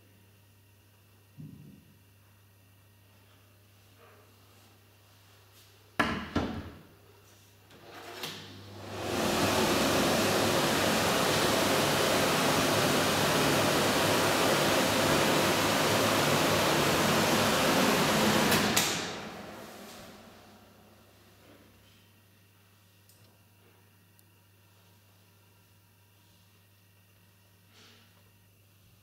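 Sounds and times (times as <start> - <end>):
extractor fan rushing air: 8.6 - 21.2.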